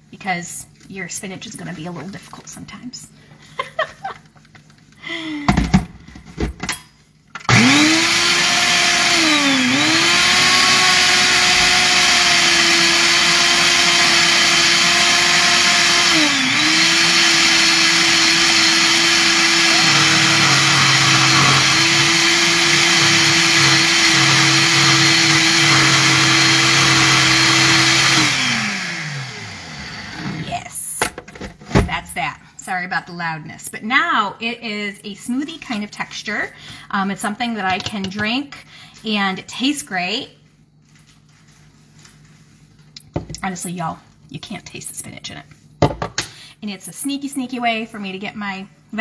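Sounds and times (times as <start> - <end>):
blender motor running: 7.4 - 30.4.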